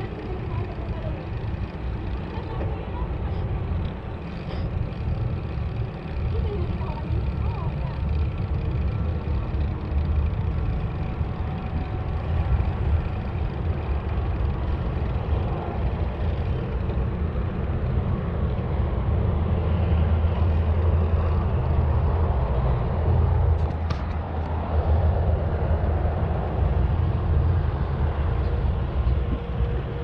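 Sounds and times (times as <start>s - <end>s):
road noise: 0.0s - 30.0s
wind rush and rumble: 0.0s - 30.0s.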